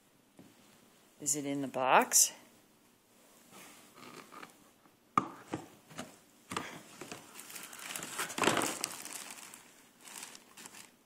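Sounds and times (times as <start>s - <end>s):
plastic bags crinkling: 6.9s - 11.0s.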